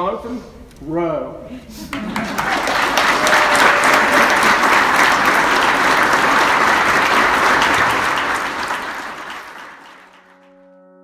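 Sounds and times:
crowd applauding: 1.9s - 10.6s.

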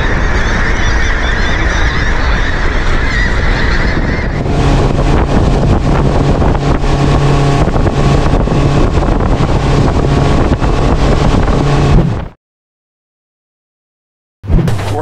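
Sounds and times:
outboard motors running: 0.0s - 12.3s
wind buffeting microphone: 0.0s - 12.3s
rush of wake and spray: 4.3s - 12.0s.

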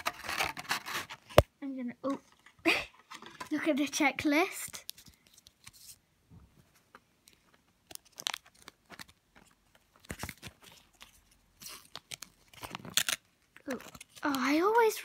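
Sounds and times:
packaging crinkling and tearing: 4.7s - 5.9s, 7.3s - 14.8s.

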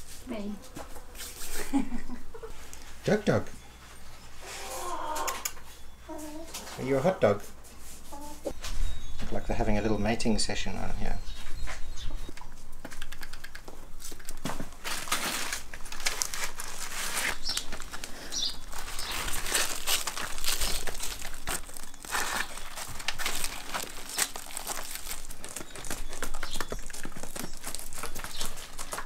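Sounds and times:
dry sunflower heads rustling: 13.6s - 29.0s.

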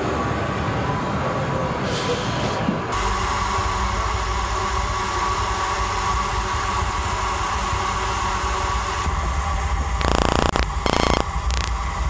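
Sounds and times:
steady tone: 10.0s - 11.7s.

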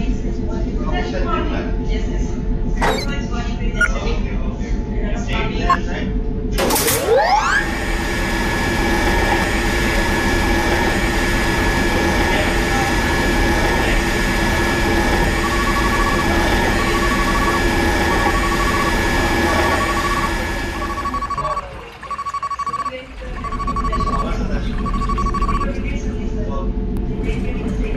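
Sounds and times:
short beeps: 2.8s - 3.2s, 15.4s - 25.7s
electric pump motor whining: 7.0s - 22.8s.

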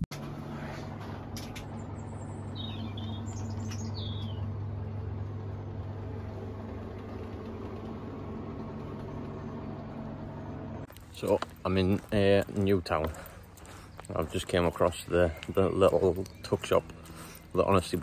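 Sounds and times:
fridge humming: 0.0s - 12.3s
bird chirps: 1.6s - 5.8s, 12.0s - 18.0s.

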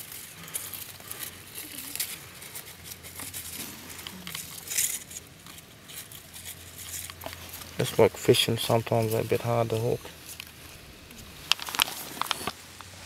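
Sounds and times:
twig scraping inside wood: 0.0s - 12.8s
small wood clicks: 9.8s - 12.9s.

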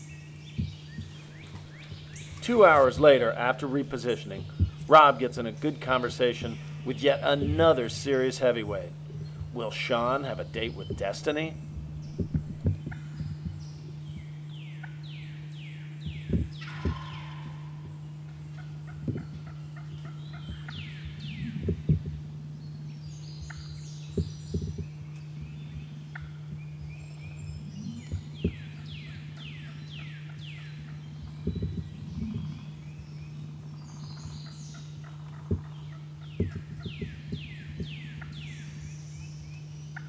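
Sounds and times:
steady low hum: 0.0s - 40.0s
short low thumps: 0.4s - 14.5s, 16.0s - 22.8s, 23.4s - 29.3s, 31.1s - 33.8s, 35.4s - 38.5s
turkey gobbling: 16.4s - 22.0s.

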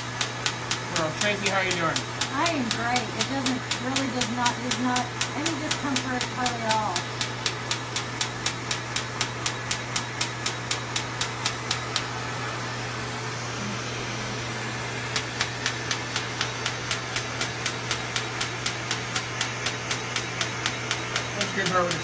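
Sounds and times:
laser firing sharp snaps: 0.1s - 12.1s.

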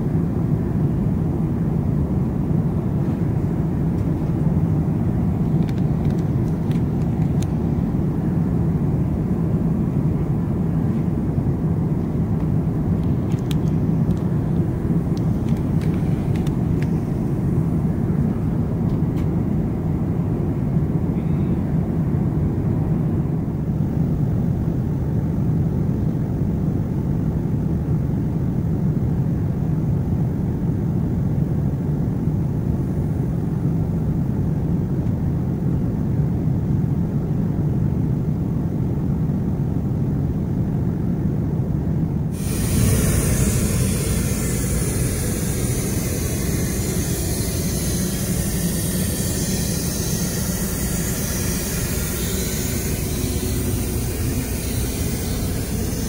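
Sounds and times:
airliner engine drone: 0.0s - 56.0s
hissy rushing sound: 42.3s - 56.0s.

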